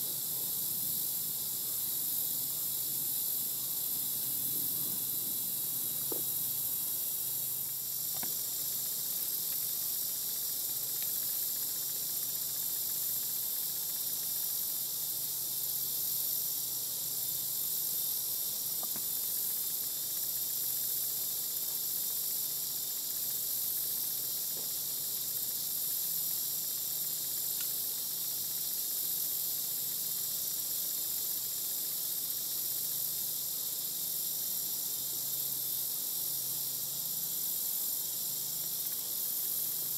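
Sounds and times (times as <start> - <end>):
insects chirping chorus: 0.0 - 39.9.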